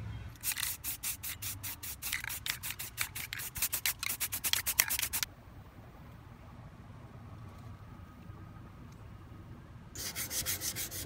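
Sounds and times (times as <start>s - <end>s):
scratchy rubbing strokes: 0.4s - 5.3s, 10.0s - 11.0s.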